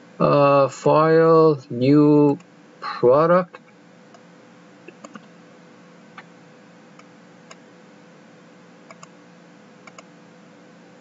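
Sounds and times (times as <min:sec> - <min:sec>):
faint steady hum: 0:00.0 - 0:11.0
computer mouse clicking: 0:04.9 - 0:05.3, 0:07.0 - 0:07.6, 0:08.9 - 0:09.2, 0:09.8 - 0:10.1.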